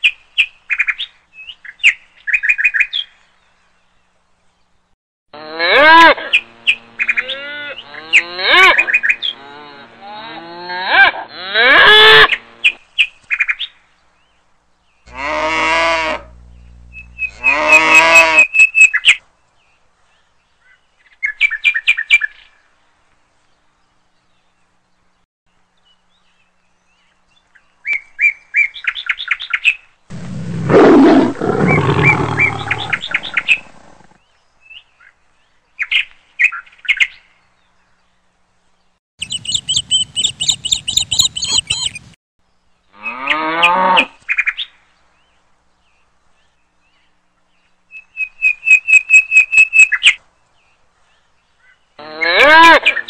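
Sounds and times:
birds chirping: 16.2 - 17.7, 25.9 - 38.3, 39.2 - 42.2
rough growling roar: 30.1 - 34.2
sliding wavering animal calls: 30.7 - 34.1.

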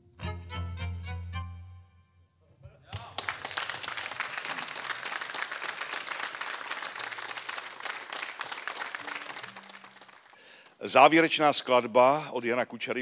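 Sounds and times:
audience applauding: 2.9 - 10.9.

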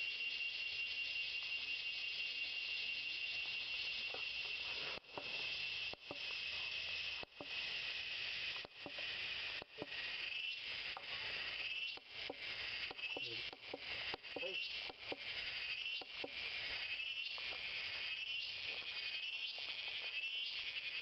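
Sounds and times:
high-pitched insect chorus buzz: 0.0 - 21.0.

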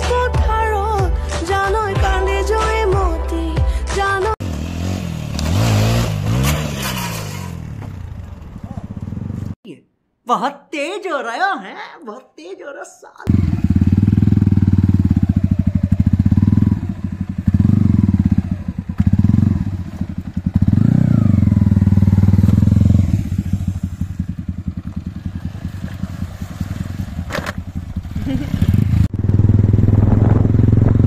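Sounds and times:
motorcycle engine revving: 4.2 - 9.6, 13.3 - 31.0.

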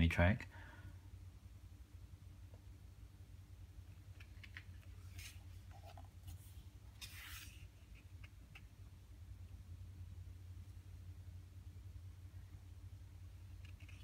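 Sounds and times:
book page turning: 4.1 - 8.7.

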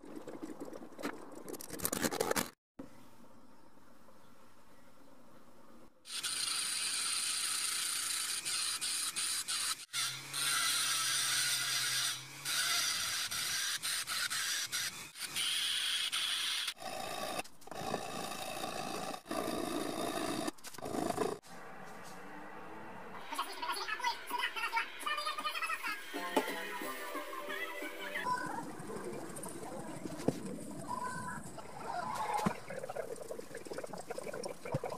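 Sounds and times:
rotary tool grinding brass: 6.1 - 17.4.

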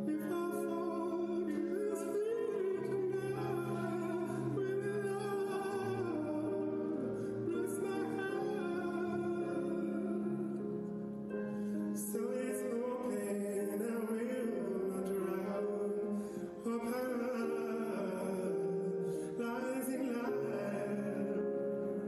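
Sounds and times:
piano chords: 0.0 - 22.0.

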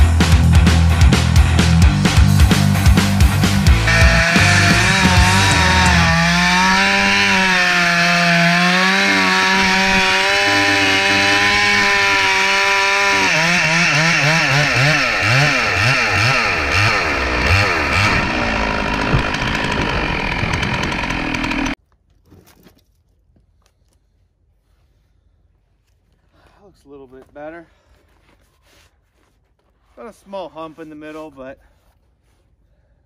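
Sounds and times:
chainsaw cutting wood under load: 3.6 - 21.8.

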